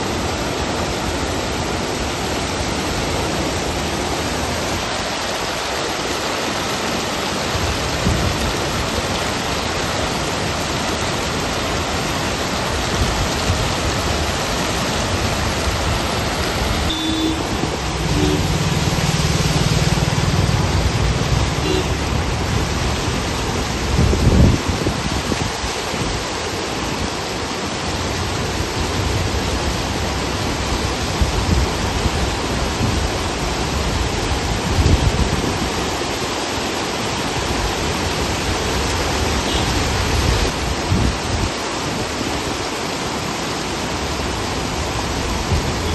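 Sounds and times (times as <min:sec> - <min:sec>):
floodwater rushing: 0:00.0 - 0:45.9
low engine hum: 0:15.6 - 0:23.0.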